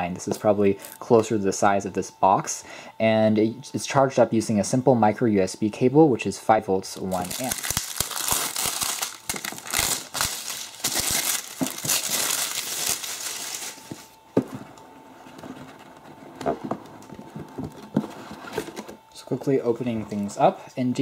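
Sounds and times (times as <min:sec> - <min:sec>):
plastic shrink-wrap crinkling: 0:06.9 - 0:14.1.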